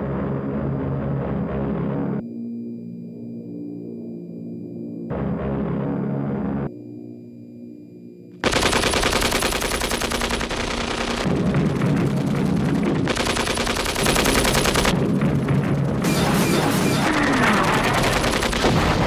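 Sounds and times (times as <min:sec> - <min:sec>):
loud rapid clattering: 0:08.4 - 0:19.0.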